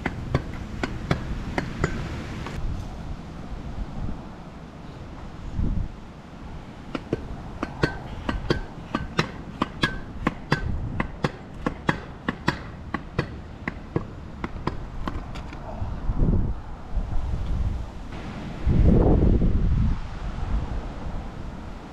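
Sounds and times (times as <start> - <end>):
pogo stick bouncing on pavement: 0.0 - 2.6, 6.9 - 15.6
wind buffeting microphone: 0.0 - 21.9.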